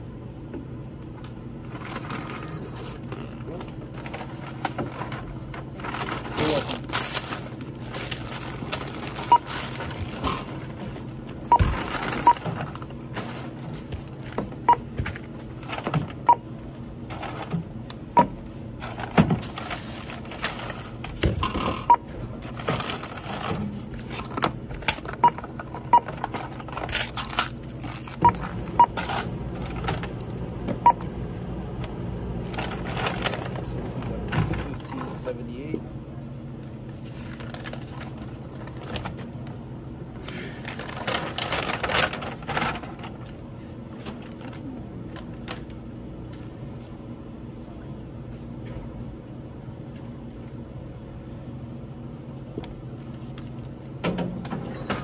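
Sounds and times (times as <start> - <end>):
items clattering and rustling: 1.6 - 16.3, 17.0 - 17.8, 18.8 - 30.8, 32.4 - 35.3, 36.8 - 39.6, 40.2 - 46.9
barcode scanner beeps: 9.3 - 9.5, 11.5 - 12.4.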